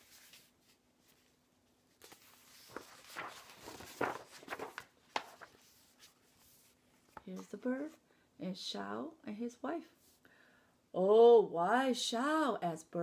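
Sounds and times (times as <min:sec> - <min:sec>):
paper pages rustling: 0:00.0 - 0:07.7.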